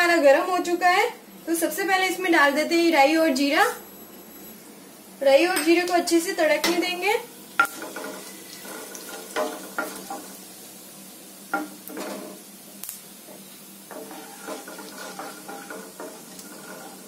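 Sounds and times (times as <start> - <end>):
seeds sizzling in hot oil: 6.3 - 17.0
wooden spatula stirring: 13.9 - 17.0.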